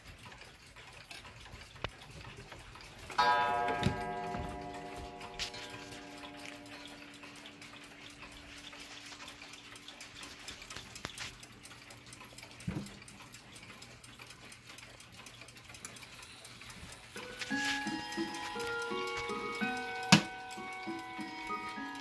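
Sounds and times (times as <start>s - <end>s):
pendulum clocks ticking: 0.0s - 22.0s
clock chime ringing: 3.1s - 10.0s, 17.2s - 22.0s.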